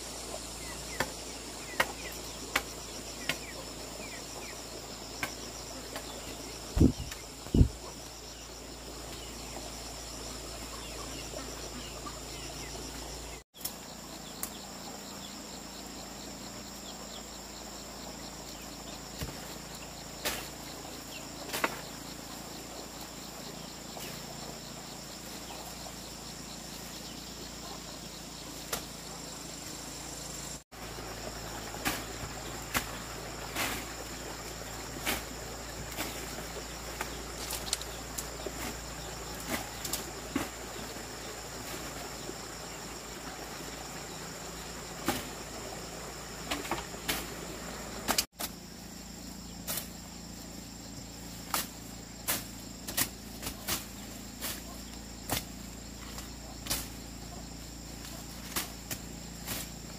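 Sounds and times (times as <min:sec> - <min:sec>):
high-pitched insect chorus: 0:00.0 - 0:59.9.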